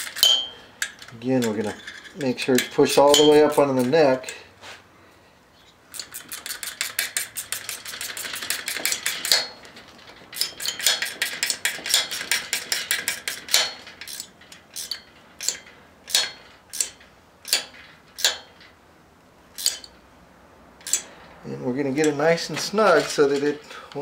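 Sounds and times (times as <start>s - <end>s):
wrench ratchet clicking: 0.0s - 4.4s, 5.9s - 9.5s, 10.4s - 18.6s, 19.6s - 20.0s, 20.8s - 21.1s.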